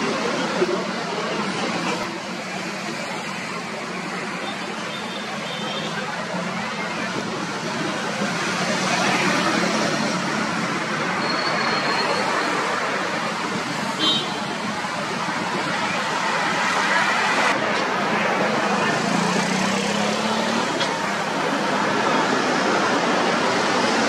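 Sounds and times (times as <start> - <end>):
cars and motorcycles driving past: 14.7 - 24.0.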